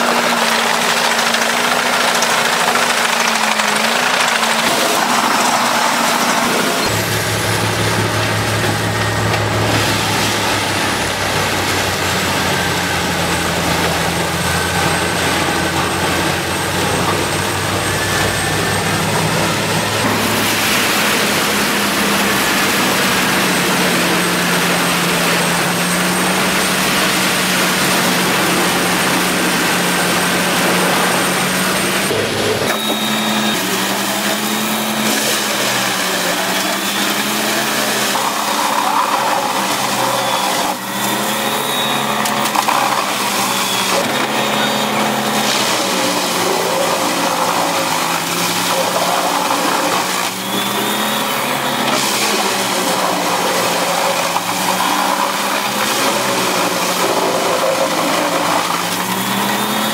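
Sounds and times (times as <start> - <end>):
rush of wood chips: 0.0 - 59.9
wood chipper shredding logs: 0.0 - 59.9.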